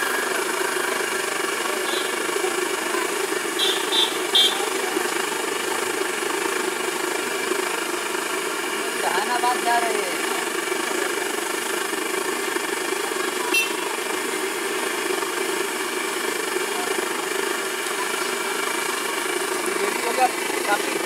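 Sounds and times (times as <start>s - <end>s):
oil sizzling while deep-frying: 10.4s - 21.0s.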